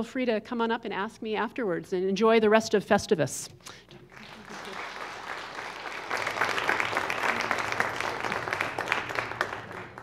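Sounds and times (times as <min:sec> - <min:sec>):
audience applauding: 0:04.1 - 0:10.0.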